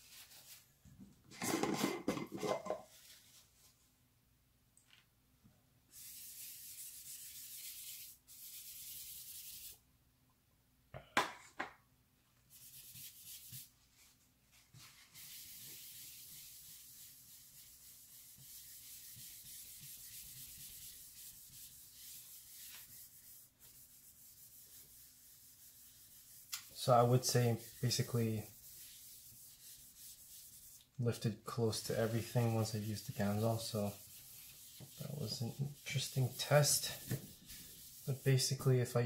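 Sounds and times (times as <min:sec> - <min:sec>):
paper towel scrubbing wood: 0:05.9 - 0:09.8, 0:12.5 - 0:39.0.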